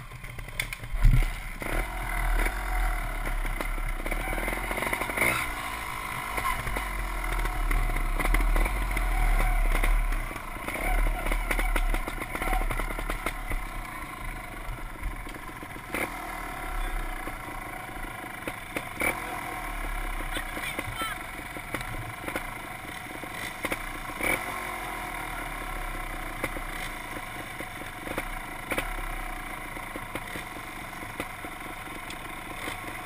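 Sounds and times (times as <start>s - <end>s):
motorcycle engine revving: 0.0s - 33.0s.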